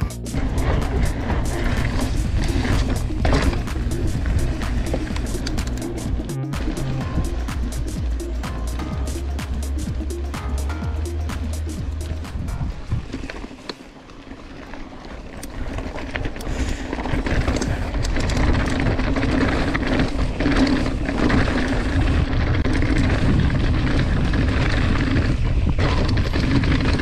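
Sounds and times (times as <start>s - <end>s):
wind rushing: 0.0s - 13.3s
bike rattling: 0.0s - 27.0s
tyres crunching over loose stones: 0.3s - 27.0s.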